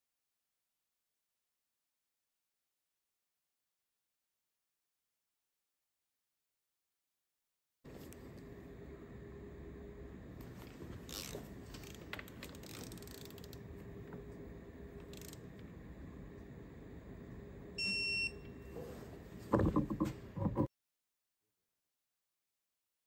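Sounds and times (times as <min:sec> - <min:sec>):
short electronic beep: 0:17.8 - 0:18.8.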